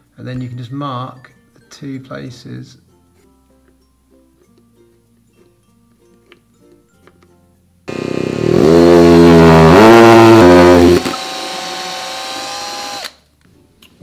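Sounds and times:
power drill motor drilling: 7.9 - 13.2.

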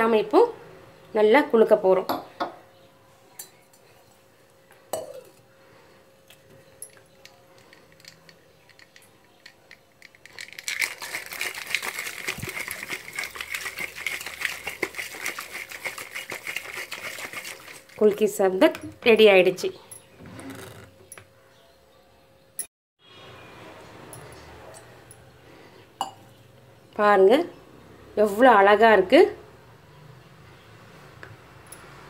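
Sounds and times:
ice rattling in a shaken glass: 6.9 - 18.3.

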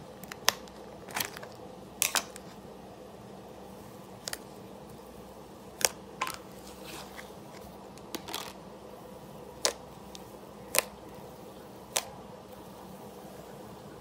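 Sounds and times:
slime popping and crackling: 9.6 - 11.0.

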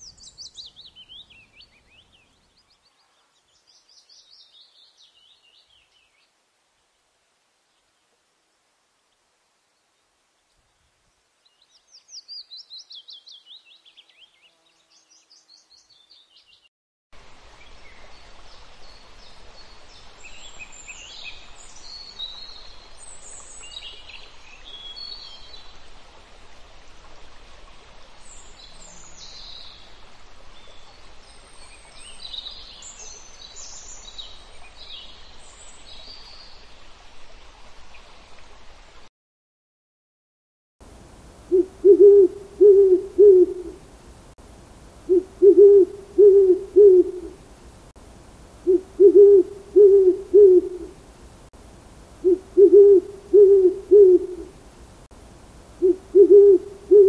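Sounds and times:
steady rushing hiss: 17.2 - 24.6, 40.8 - 57.0
birds chirping and calling: 41.6 - 43.7, 45.1 - 47.3.

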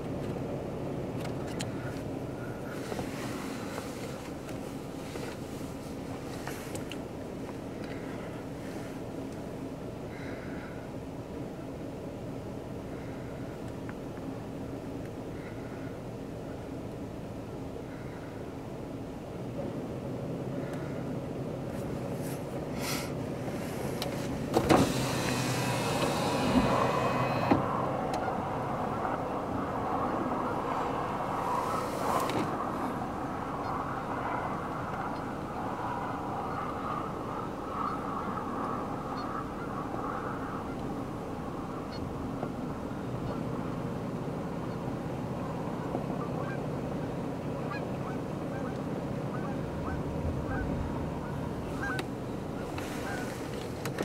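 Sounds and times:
road-side rumble: 0.0 - 54.0
wind buffeting microphone: 19.5 - 54.0
vehicle passing: 22.2 - 43.1
faint bird calls: 36.4 - 40.9, 47.7 - 53.5.

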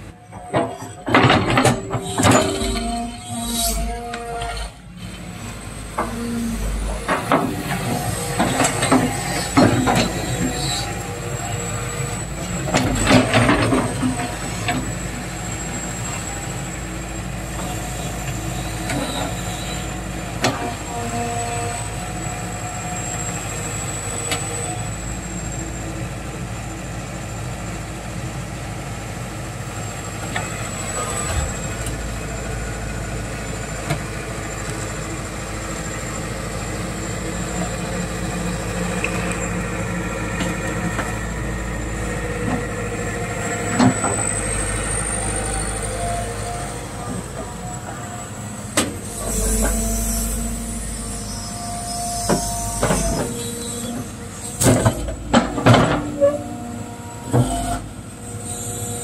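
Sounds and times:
excavator diesel engine running: 0.0 - 59.0
thin high whine: 2.0 - 4.8, 48.8 - 54.4.

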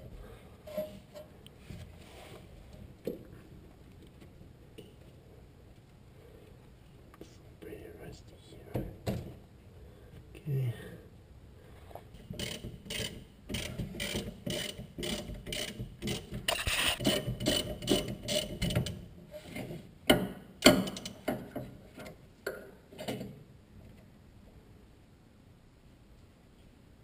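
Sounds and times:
ratchet wrench clicking: 12.4 - 18.5.

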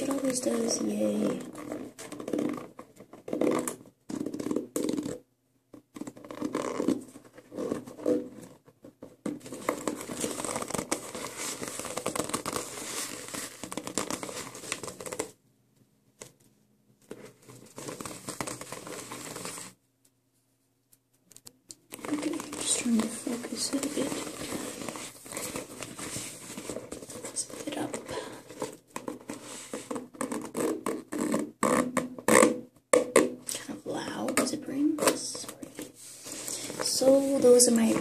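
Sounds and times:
fingers scratching leather boot: 6.0 - 8.3, 29.0 - 32.5.

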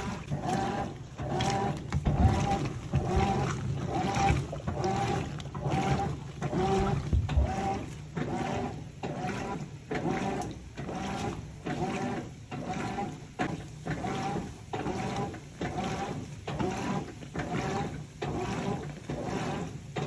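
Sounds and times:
washing machine motor humming: 0.0 - 20.0
water sloshing: 0.0 - 20.0.

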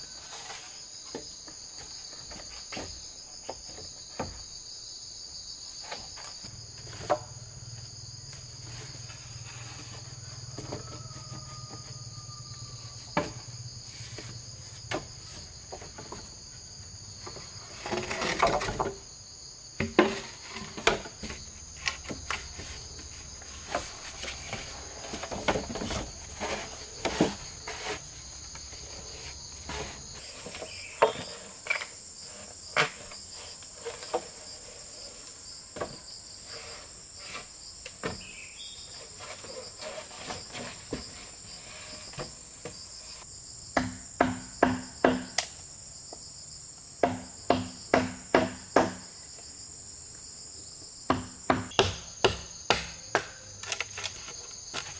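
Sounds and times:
forest insects droning: 0.0 - 54.9
bamboo poles knocking and clattering: 0.2 - 4.5, 5.8 - 16.5, 17.1 - 19.1, 19.8 - 34.6, 35.7 - 36.1, 43.8 - 45.6, 47.0 - 49.1, 51.1 - 54.9
hollow strikes on bamboo: 43.8 - 45.5, 47.0 - 49.1, 51.1 - 54.2.

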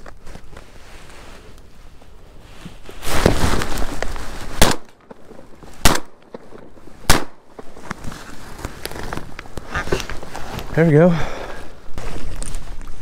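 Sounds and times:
shotgun shots: 4.6 - 4.9, 5.8 - 6.5, 7.1 - 7.4.

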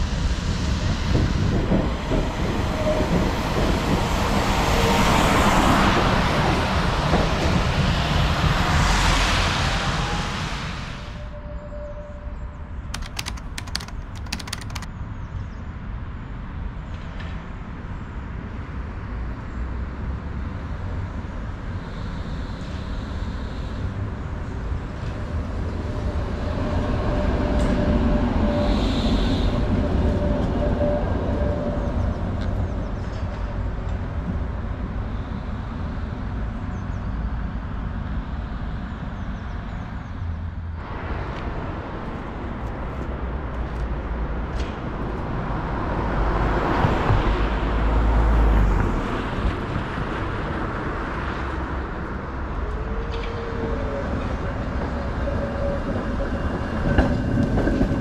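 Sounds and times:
tram wheels rumbling on rails: 0.0 - 11.6, 23.8 - 58.0
tram whine: 0.0 - 14.9, 21.8 - 37.0, 39.6 - 58.0.

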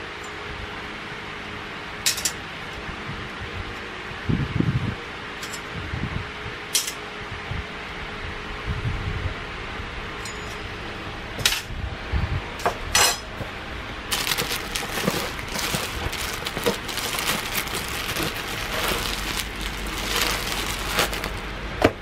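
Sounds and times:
cardboard packaging crinkling: 14.1 - 21.6.

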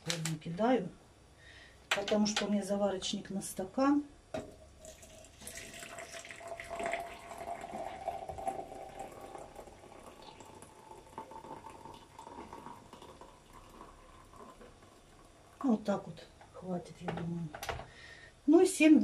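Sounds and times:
water pouring into glass: 4.4 - 15.6.

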